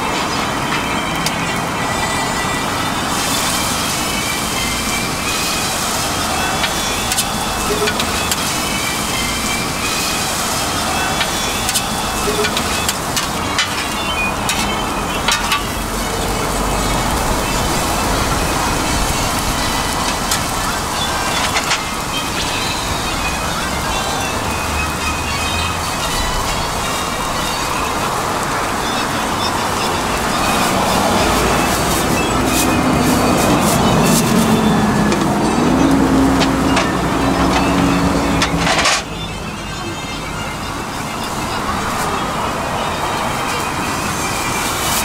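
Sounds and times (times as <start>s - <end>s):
food sizzling on a griddle: 0.3s - 45.0s
utensils clicking and scraping: 5.7s - 16.1s.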